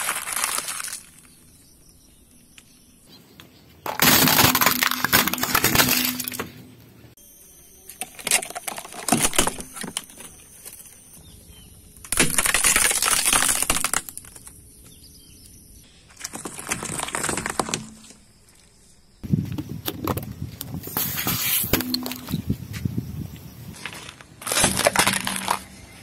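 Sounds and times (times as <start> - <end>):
cardboard tube crunching: 0.0 - 1.4, 12.1 - 14.5, 16.1 - 18.2, 23.7 - 25.9
fruit bursting and crackling: 0.0 - 1.6, 12.0 - 14.7, 16.2 - 18.2, 24.2 - 25.7
plastic cracking: 12.0 - 14.9, 16.1 - 18.2.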